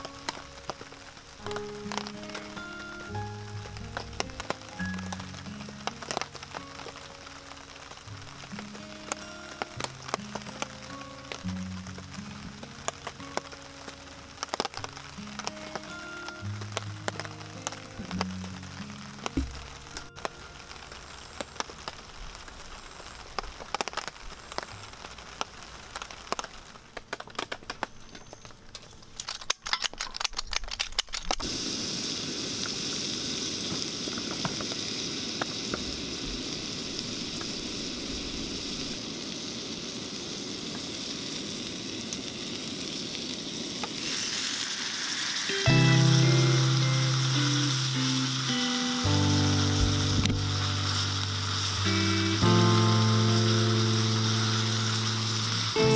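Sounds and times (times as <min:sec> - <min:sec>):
music: 0:00.0 - 0:21.6, 0:45.4 - 0:55.9
butter sizzling in a skillet: 0:00.0 - 0:26.6, 0:31.4 - 0:55.9
crackles and clicks: 0:00.0 - 0:55.9.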